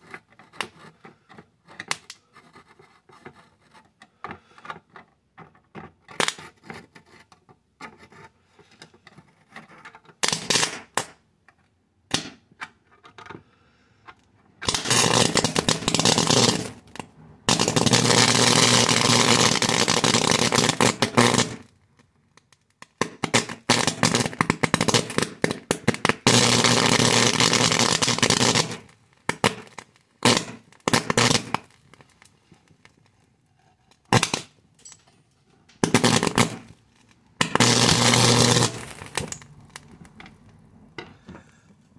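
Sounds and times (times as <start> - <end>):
electric arcing snaps and crackling: 10.2 - 11.2, 14.6 - 21.7, 23.0 - 32.3, 34.1 - 34.5, 35.8 - 36.8, 37.4 - 39.9.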